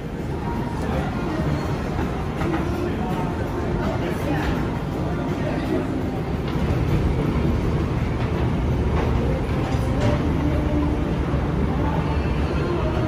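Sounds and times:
moving walkway rumbling: 0.0 - 13.0.

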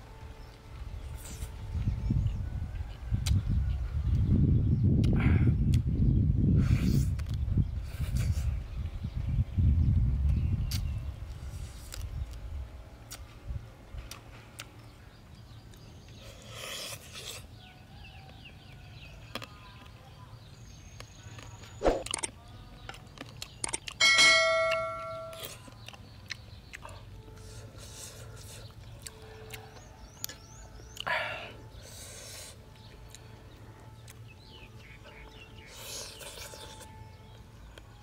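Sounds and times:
man chewing: 10.7 - 12.5, 14.0 - 14.8, 15.7 - 17.5, 22.9 - 24.0, 25.3 - 33.3, 35.0 - 37.0
ringing bell-like clink: 24.0 - 25.4.

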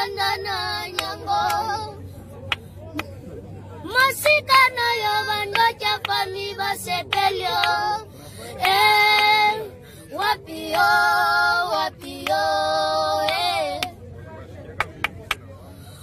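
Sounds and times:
two boys singing: 0.0 - 2.0, 3.9 - 14.0.

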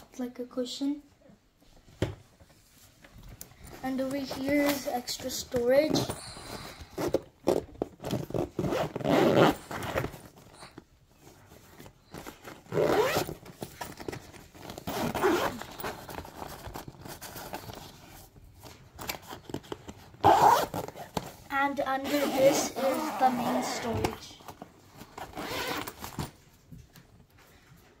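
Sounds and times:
zipper rasping: 5.8 - 17.7, 20.2 - 21.4, 22.0 - 26.3.

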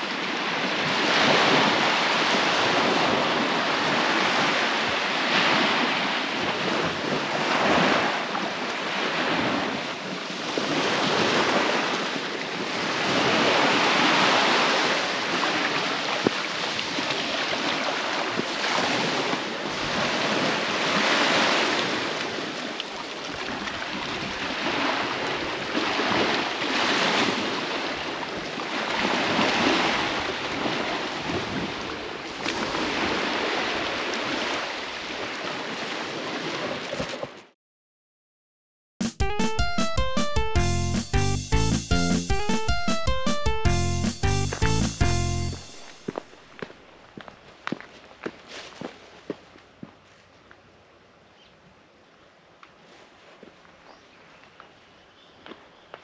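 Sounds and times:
small waves breaking on beach: 0.0 - 37.5.

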